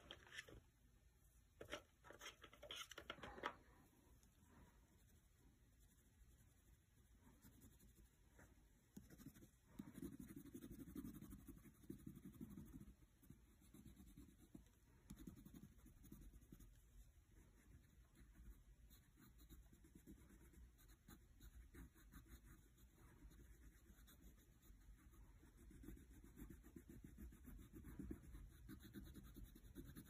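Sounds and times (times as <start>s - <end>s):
crayon scribbling on paper: 7.4s - 8.2s, 9.0s - 30.0s.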